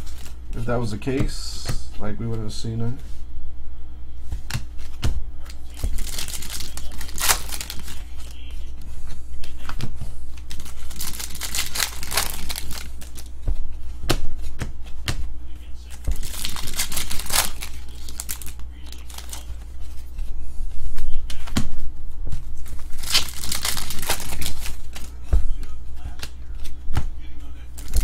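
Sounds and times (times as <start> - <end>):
cards rustling by hand: 0.0 - 2.5, 4.3 - 20.3, 22.4 - 26.8, 27.4 - 28.0
steady low hum: 0.0 - 28.0
card wrappers crinkling and tearing: 5.5 - 8.4, 10.4 - 13.3, 15.9 - 19.6, 22.6 - 25.2, 27.7 - 28.0.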